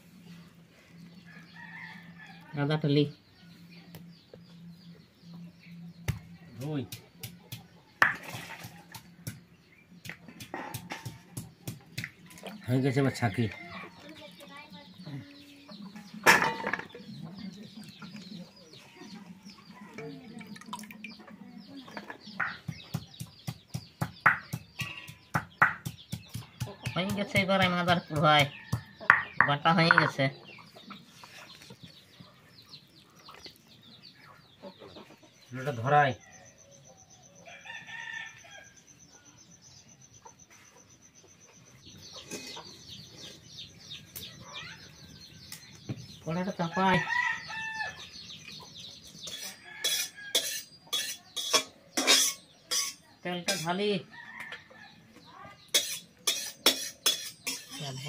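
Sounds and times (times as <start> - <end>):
chickens clucking: 2.9 - 36.2, 40.1 - 58.0
hens clucking: 26.3 - 35.5.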